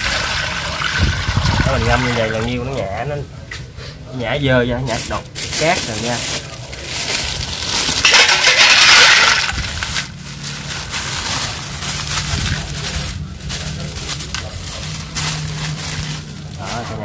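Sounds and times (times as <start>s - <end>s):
handling sounds: 4.9s - 17.0s
clam shells clattering: 6.7s - 10.2s.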